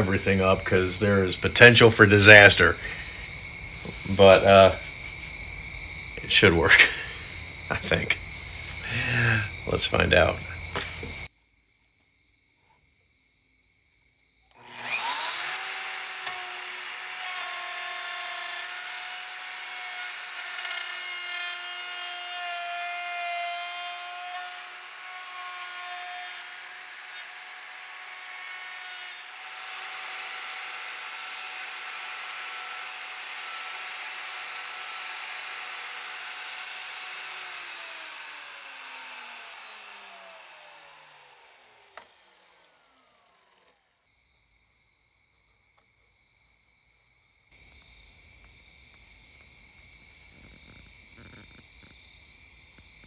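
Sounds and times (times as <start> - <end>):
router whining: 6.2 - 11.3, 14.5 - 44.0.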